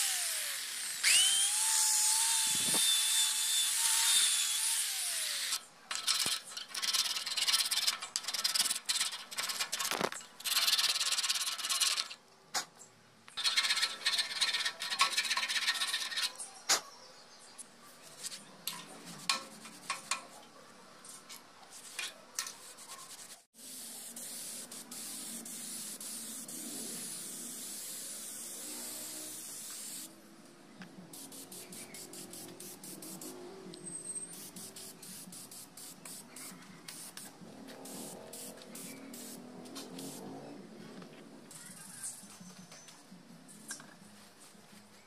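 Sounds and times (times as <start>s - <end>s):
spray paint can hissing: 23.0s - 30.1s, 31.1s - 33.4s, 34.3s - 40.2s.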